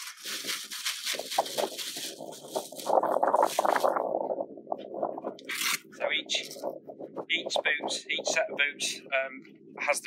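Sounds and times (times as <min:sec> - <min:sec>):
plastic bag rustling and crinkling: 0:00.0 - 0:04.3.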